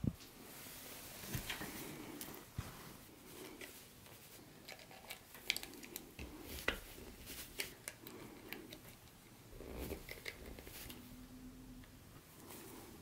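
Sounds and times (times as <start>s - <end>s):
hands rustling small objects: 1.3s - 9.1s.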